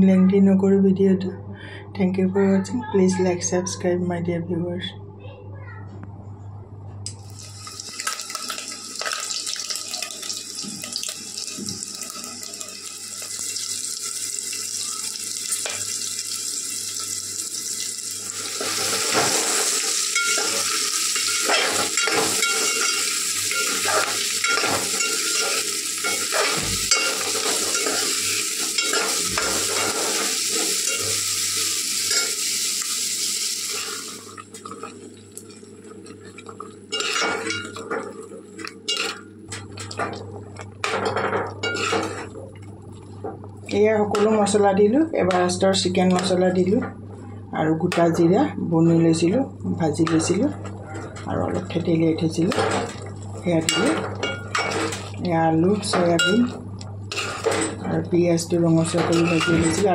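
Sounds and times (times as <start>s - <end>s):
food frying in hot oil: 7.2s - 44.7s
metal spoon scraping a pot: 36.9s - 37.8s, 41.6s - 42.1s.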